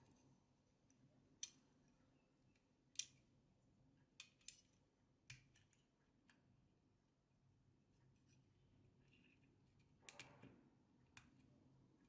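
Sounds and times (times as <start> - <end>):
small tools clicking and tapping: 1.4 - 1.7, 4.2 - 6.4, 9.2 - 11.4.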